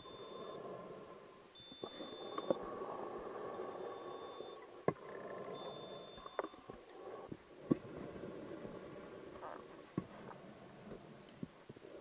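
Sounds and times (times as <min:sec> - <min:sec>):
high steady beeps: 0:01.6 - 0:02.6, 0:03.6 - 0:04.6, 0:05.6 - 0:06.6.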